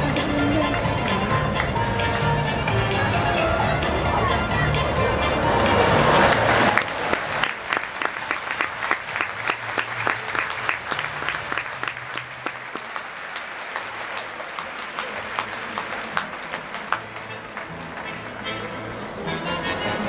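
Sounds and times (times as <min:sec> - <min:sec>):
audience clapping: 0:05.4 - 0:19.0.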